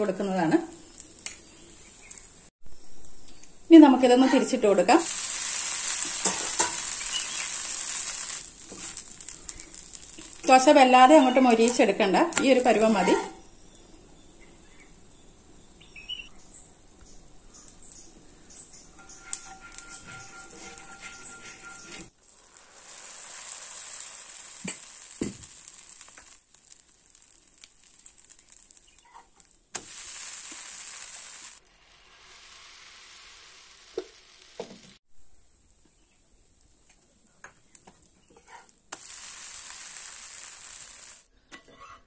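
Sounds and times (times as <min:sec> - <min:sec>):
batter sizzling on a griddle: 0:00.0 - 0:02.5, 0:04.0 - 0:13.1, 0:17.4 - 0:41.3.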